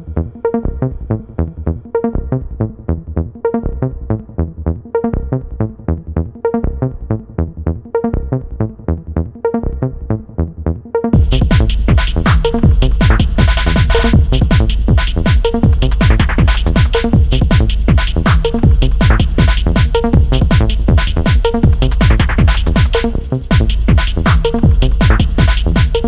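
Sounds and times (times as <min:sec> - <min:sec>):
electronic music with beat: 0:11.0 - 0:26.0.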